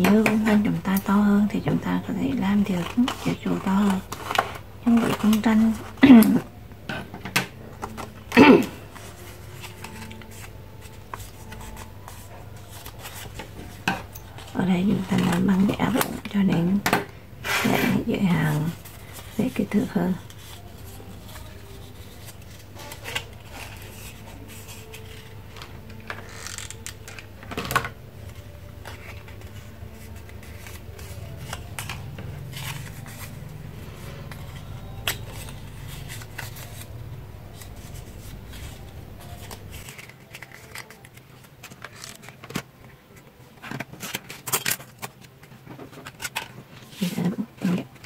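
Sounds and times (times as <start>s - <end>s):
paper rustling: 2.3s - 6.4s, 7.5s - 16.2s, 17.5s - 48.0s
scissors snipping paper: 37.6s - 42.6s.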